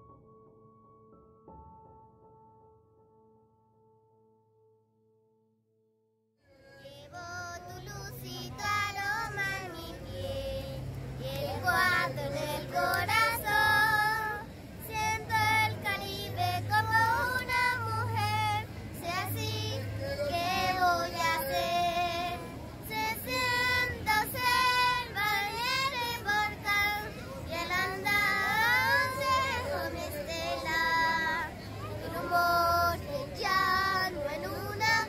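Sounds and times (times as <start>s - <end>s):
girls singing together: 6.5s - 35.0s.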